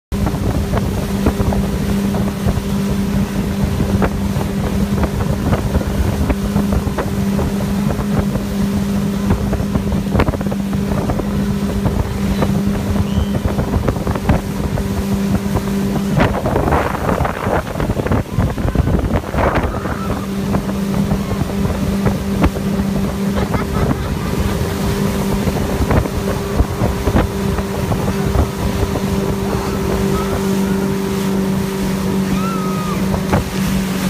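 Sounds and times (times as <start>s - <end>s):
motorboat engine running: 0.1s - 34.0s
wind buffeting microphone: 0.1s - 34.0s.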